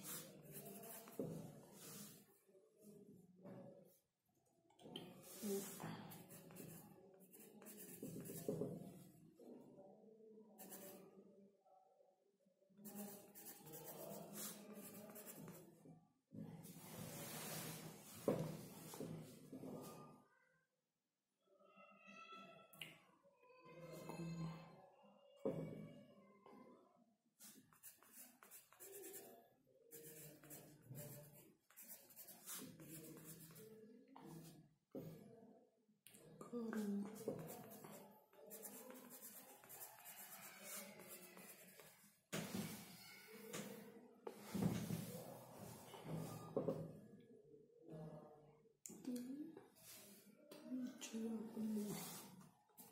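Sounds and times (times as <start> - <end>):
pencil scratching on paper: 0.0 - 2.2, 5.3 - 8.8, 10.6 - 11.0, 12.8 - 15.6, 27.4 - 29.3, 29.9 - 33.7, 37.0 - 45.8.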